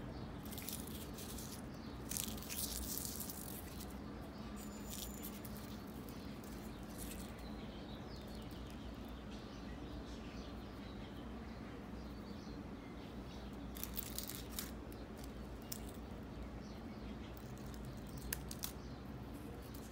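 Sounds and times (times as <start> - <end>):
dried petals crackling: 0.4 - 9.2, 13.4 - 16.5, 17.1 - 19.9.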